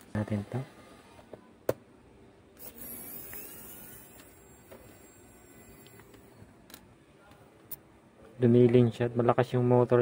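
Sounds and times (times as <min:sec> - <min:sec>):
electric screwdriver whirring: 0:02.6 - 0:06.4.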